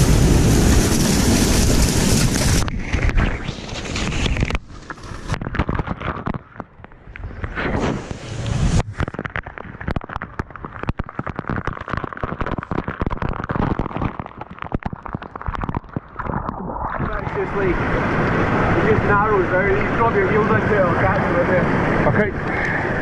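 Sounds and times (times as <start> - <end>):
whitewater rushing over rock: 0.0 - 6.2, 8.0 - 23.0
water crackling on camera housing: 0.2 - 21.3.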